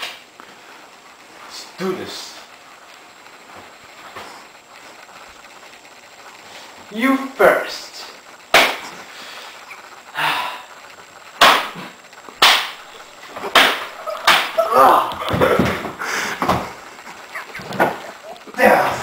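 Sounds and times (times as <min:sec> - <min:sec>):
latex gloves slapping face: 0:08.5 - 0:08.9, 0:11.4 - 0:16.7.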